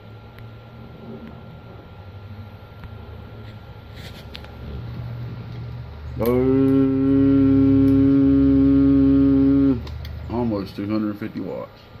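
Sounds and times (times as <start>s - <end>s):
low steady equipment hum: 0.0s - 12.0s
man holding a long note: 6.2s - 9.9s.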